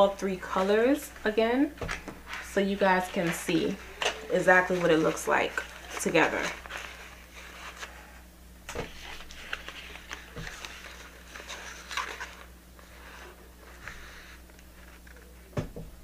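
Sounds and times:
packaging rustling: 1.9s - 8.1s, 8.7s - 13.4s.

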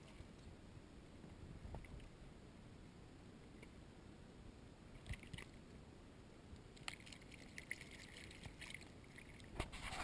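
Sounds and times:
splashing in shallow water: 6.7s - 10.0s.

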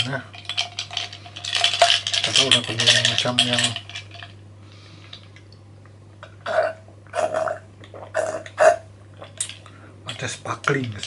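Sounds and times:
throaty mouth sounds: 6.4s - 9.5s.

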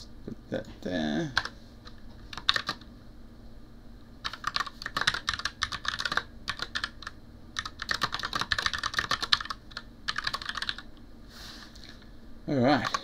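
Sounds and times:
computer keyboard key clicks: 4.3s - 10.8s.

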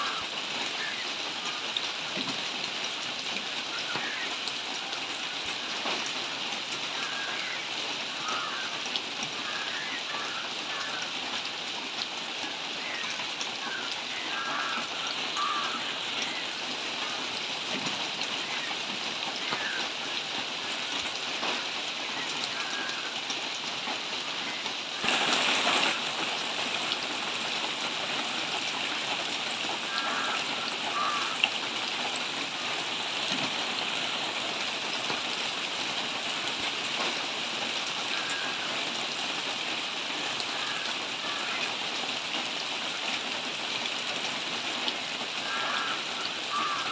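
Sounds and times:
rain falling on leaves: 0.0s - 46.9s.

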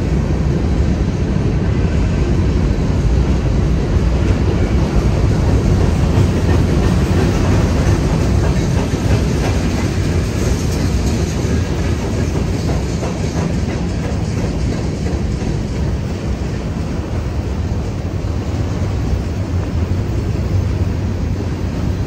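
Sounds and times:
train wheels on rails: 0.0s - 22.0s.

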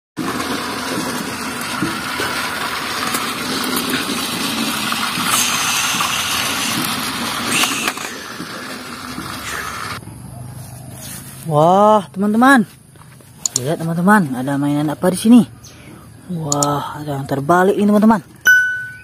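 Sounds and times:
small electric motors whirring: 0.2s - 10.0s
toy train wheels clicking on track: 0.2s - 10.0s.

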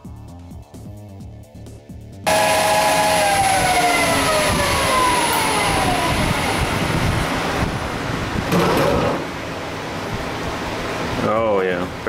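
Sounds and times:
lathe spindle whine winding down: 2.3s - 8.4s.

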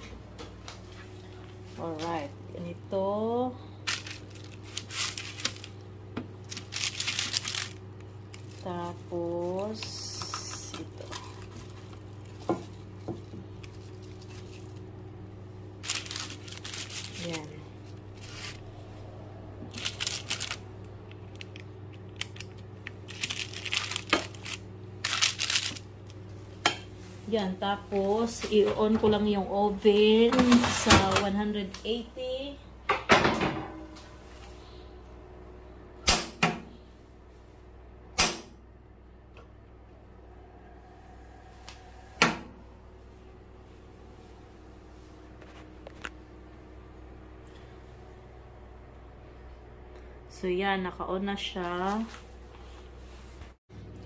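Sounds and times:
steady low hum: 0.0s - 54.0s
baking paper crinkling: 3.8s - 15.0s, 15.7s - 18.9s, 19.7s - 26.3s.

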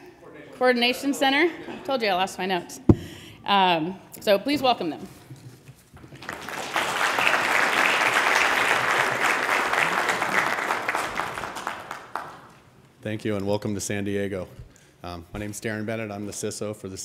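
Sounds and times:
audience applauding: 6.0s - 12.7s.

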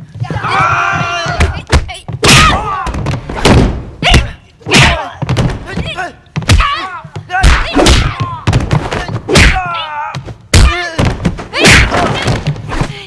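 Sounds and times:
fighters shouting and crying out: 0.2s - 13.0s
punch and kick impacts: 1.3s - 5.8s, 6.4s - 6.8s, 7.4s - 9.7s, 10.5s - 12.9s.

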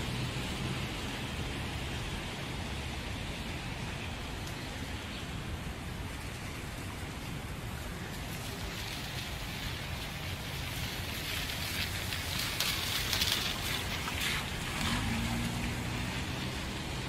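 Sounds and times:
street noise on wet pavement: 0.0s - 17.0s.

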